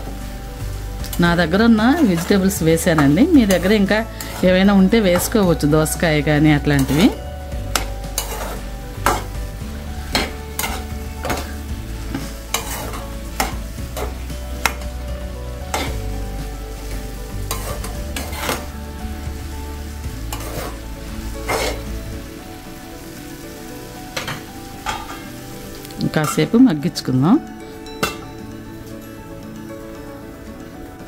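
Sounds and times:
vegetables sizzling frying: 0.0s - 31.0s
spoon scraping metal pan: 1.0s - 15.0s, 15.6s - 16.0s, 16.7s - 18.8s, 20.2s - 22.0s.

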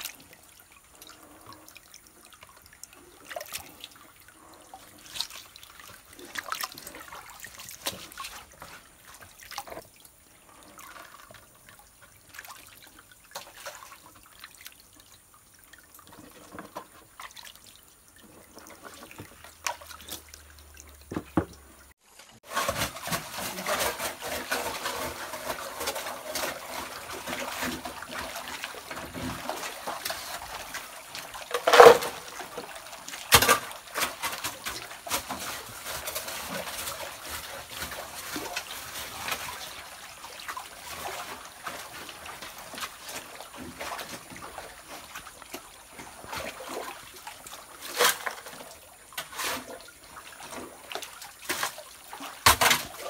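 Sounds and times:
muddy water trickling and splashing: 0.0s - 53.0s.

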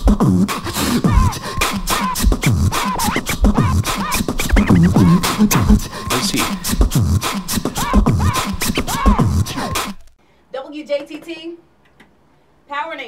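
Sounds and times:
hip-hop beat: 0.0s - 10.0s
record scratching: 0.4s - 10.0s.

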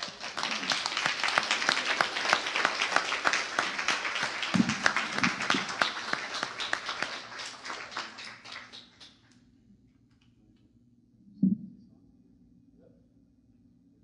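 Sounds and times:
crowd applauding: 0.0s - 9.4s.

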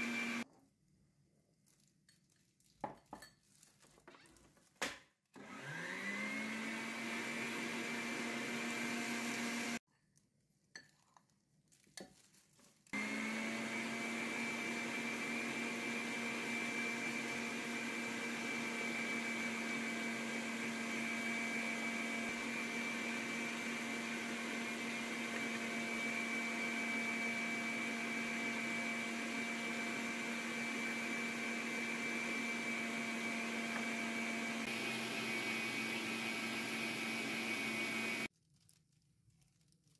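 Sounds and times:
stand mixer motor running: 0.0s - 0.4s, 5.4s - 9.8s, 13.0s - 38.3s.

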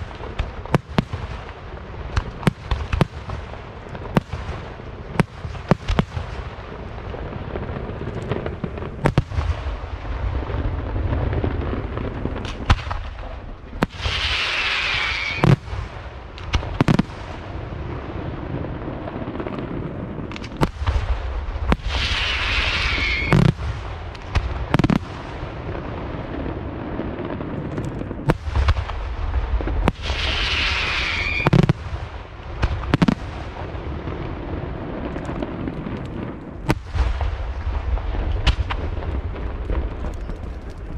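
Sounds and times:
falling firework whistle: 13.9s - 15.6s, 21.7s - 23.5s, 29.9s - 31.7s.

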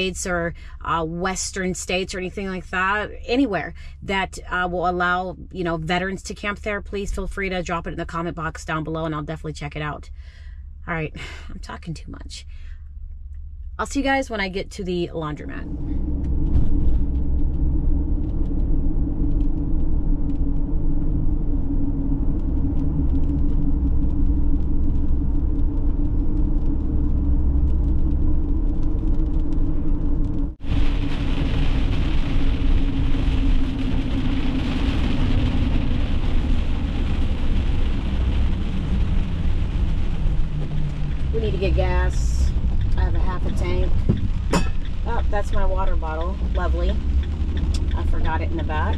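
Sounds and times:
rain: 0.0s - 0.8s, 1.5s - 4.5s, 15.4s - 48.9s
engine and road noise drone: 5.2s - 48.9s.

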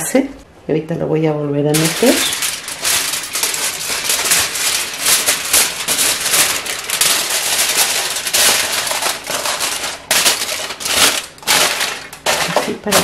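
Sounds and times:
aluminium foil crinkling: 1.7s - 13.0s.

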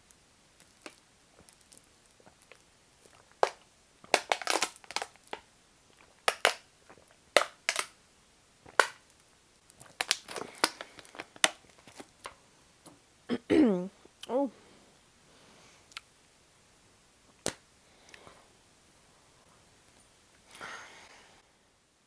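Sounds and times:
plastic bottle crackling: 3.2s - 5.4s, 6.2s - 6.7s, 7.4s - 7.9s, 8.7s - 9.0s, 9.7s - 12.3s.

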